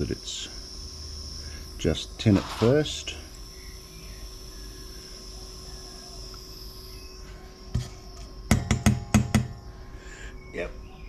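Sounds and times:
solder hissing on iron: 0.0 - 10.3
circuit board knocking on desk: 8.5 - 9.6.

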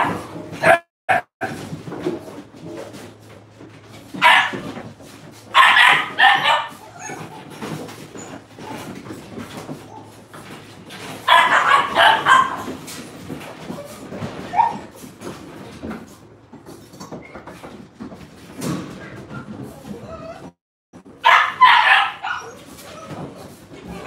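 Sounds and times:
puppies yapping: 0.0 - 1.2, 4.1 - 4.8, 5.5 - 15.0, 21.2 - 24.0.

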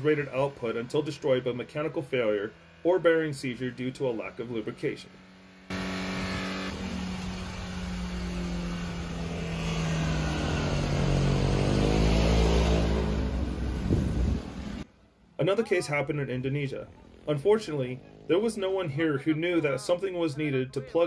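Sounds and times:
truck driving past: 5.1 - 14.8
runaway diesel engine screaming: 5.7 - 13.5.

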